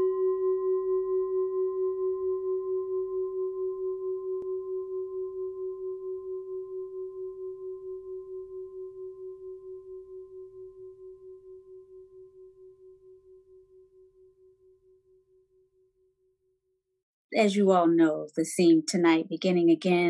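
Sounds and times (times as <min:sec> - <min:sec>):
singing bowl ringing: 0:00.0 - 0:16.0.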